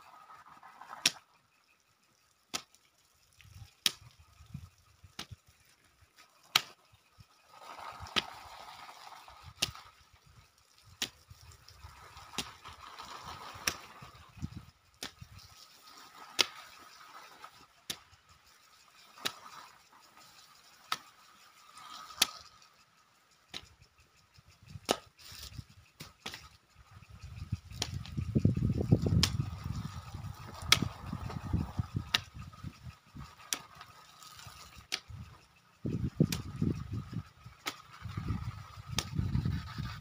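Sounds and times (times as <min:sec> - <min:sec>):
low rumble: 0:26.8 - 0:33.3.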